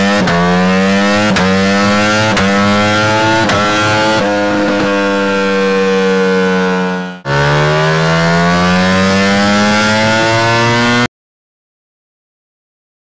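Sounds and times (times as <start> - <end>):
motorcycle engine at high revs: 0.0 - 11.1.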